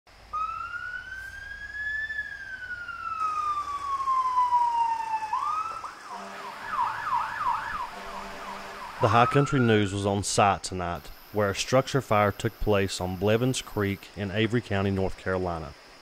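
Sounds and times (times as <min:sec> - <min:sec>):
emergency siren wailing: 0:00.2 - 0:10.2
siren fast yelp: 0:00.3 - 0:10.1.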